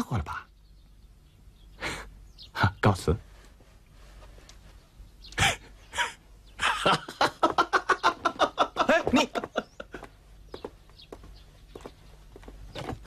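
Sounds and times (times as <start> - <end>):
man laughing loudly: 5.4 - 10.1.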